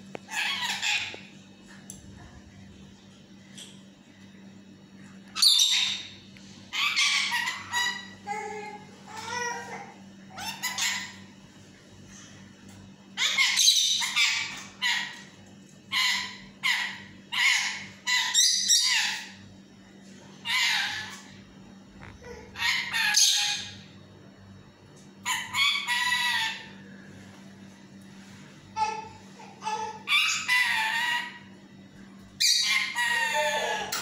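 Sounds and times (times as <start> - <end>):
parakeet calling: 0.2 - 1.3, 5.3 - 8.3, 10.3 - 11.2, 13.2 - 15.2, 15.9 - 19.4, 20.4 - 21.3, 22.2 - 23.9, 25.2 - 26.8, 29.7 - 31.5, 32.4 - 34.0.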